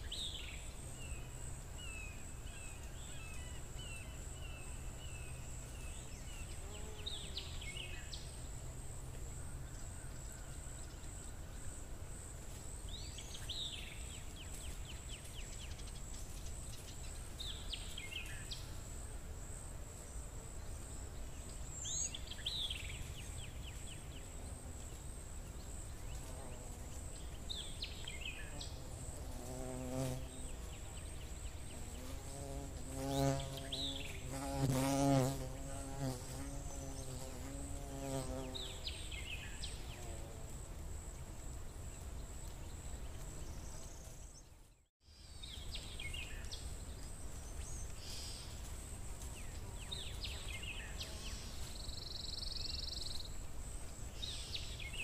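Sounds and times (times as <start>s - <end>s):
fly buzzing: 28.5s - 30.7s, 31.7s - 38.8s.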